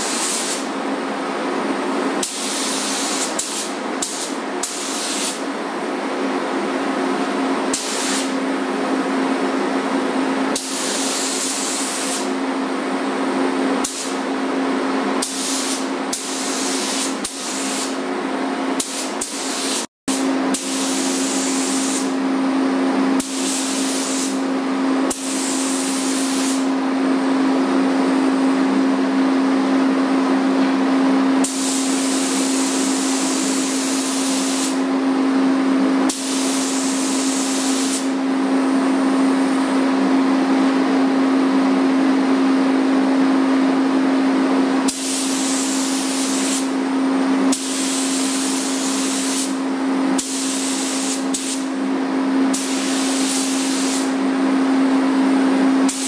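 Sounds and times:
paint spray gun hissing: 0.0 - 0.7, 2.2 - 5.4, 7.7 - 8.4, 10.6 - 12.3, 13.8 - 14.2, 15.2 - 18.0, 18.8 - 22.2, 23.2 - 24.4, 25.1 - 26.7, 31.4 - 34.8, 36.1 - 38.2, 44.9 - 46.7, 47.5 - 49.6, 50.2 - 51.7, 52.5 - 54.2.

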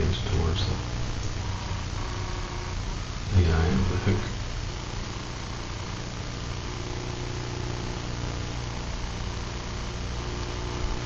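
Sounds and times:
even hiss: 0.0 - 8.1
steady low hum: 0.0 - 11.0.

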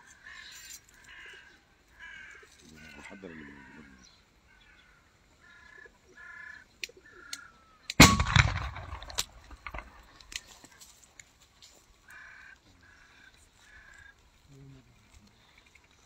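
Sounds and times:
gas cannon bang echoing: 8.0 - 10.0.

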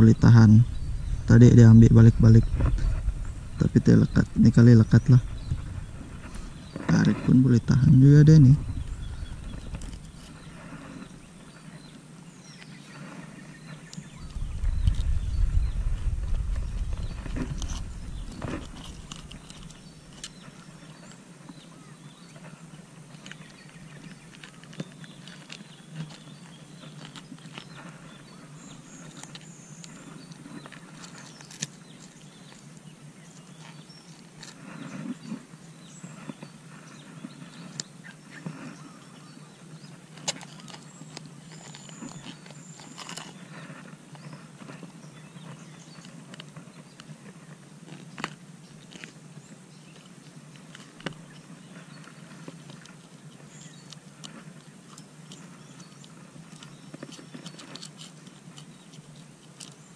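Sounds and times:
low steady background: 0.0 - 59.9
clicks and rustles of tools: 17.1 - 21.6, 23.1 - 32.8, 40.1 - 59.9.

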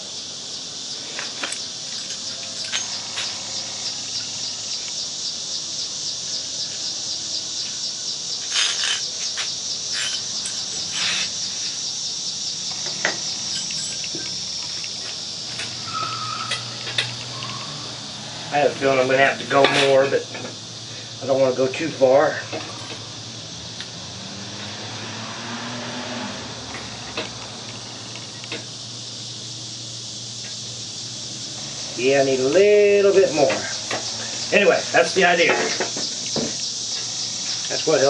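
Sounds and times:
insects trilling: 0.0 - 38.0
steel parts clicking and knocking: 1.3 - 3.3, 8.4 - 11.4, 12.8 - 15.8.

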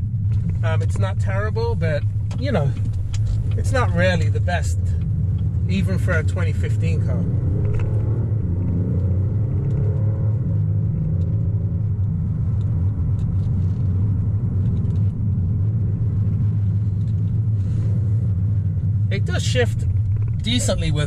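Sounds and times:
car engine and road rumble: 0.0 - 21.0
faint engine hum: 0.0 - 21.0.

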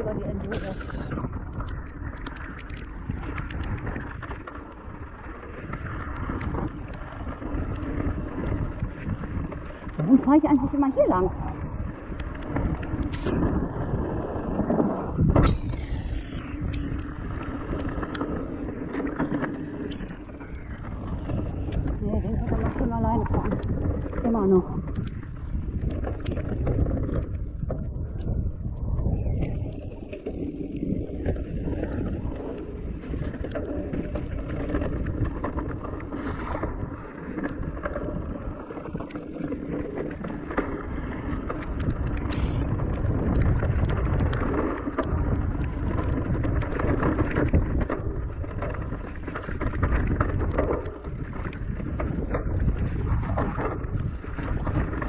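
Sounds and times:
wind buffeting microphone: 0.0 - 55.0
bike rattling and knocking: 17.0 - 28.5, 29.7 - 55.0.

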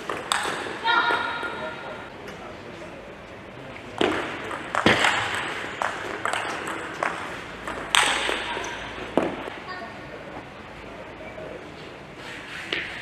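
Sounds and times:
ball bouncing on table: 4.0 - 9.5.

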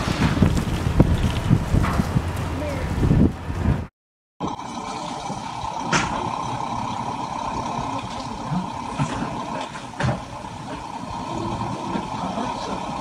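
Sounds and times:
heavy diesel engine running: 4.4 - 13.0.

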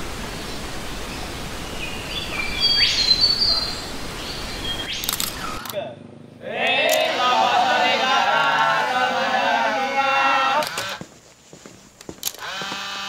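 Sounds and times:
steady outdoor hiss: 0.0 - 13.0
birds chirping: 0.3 - 5.8.

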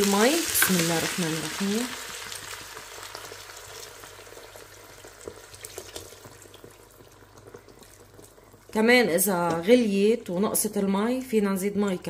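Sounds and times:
water pouring into a pot: 0.0 - 8.8.

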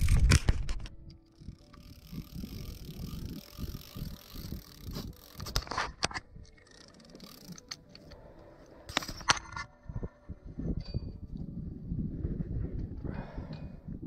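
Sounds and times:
camera handling rumble: 0.0 - 8.2, 8.9 - 9.8.

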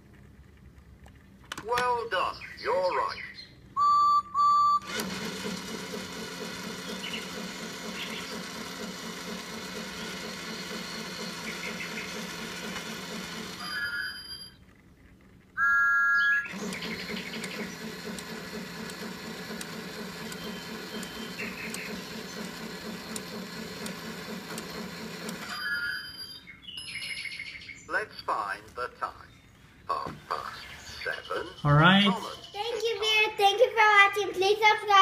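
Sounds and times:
electronic toy tone: 3.8 - 5.0, 13.6 - 14.6, 15.6 - 17.7, 25.4 - 27.4
toy motor whirring and rattling: 4.8 - 15.4, 16.5 - 26.1.

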